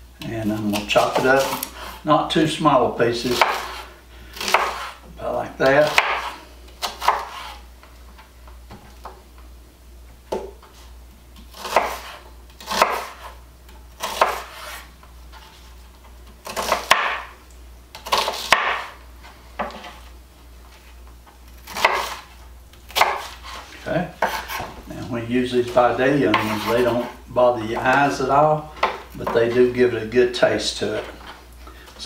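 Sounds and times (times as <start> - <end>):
knife cutting onion on wood board: 3.2 - 7.6, 11.4 - 15.7, 16.3 - 19.0, 21.6 - 24.8, 25.6 - 29.7.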